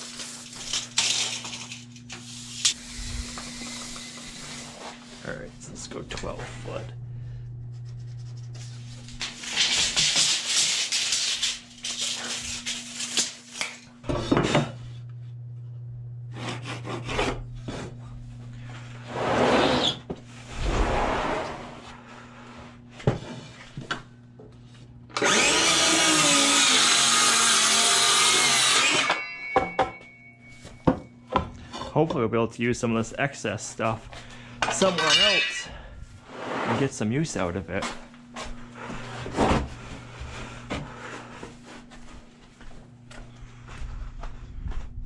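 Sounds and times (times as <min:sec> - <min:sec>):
circular saw cutting wood: 0:02.4 - 0:05.2, 0:16.3 - 0:17.4, 0:25.2 - 0:29.2.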